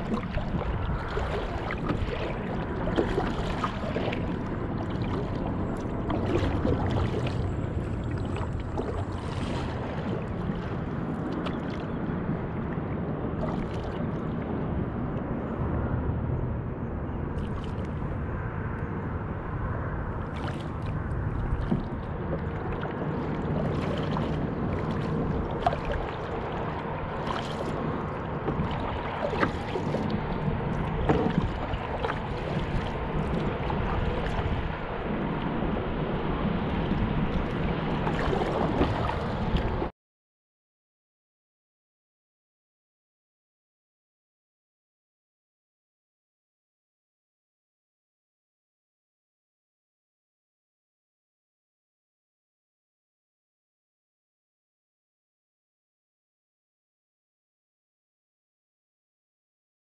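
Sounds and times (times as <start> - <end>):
water lapping against kayak hull: 0.0 - 15.2, 17.4 - 18.1, 20.2 - 39.9
small splashes and clicks: 17.4 - 18.0, 20.3 - 27.9, 28.5 - 34.5.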